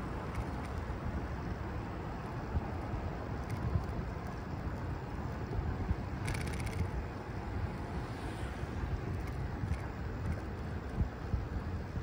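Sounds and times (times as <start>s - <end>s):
wind rumbling on microphone: 0.0s - 12.0s
fast clicking: 6.2s - 6.9s.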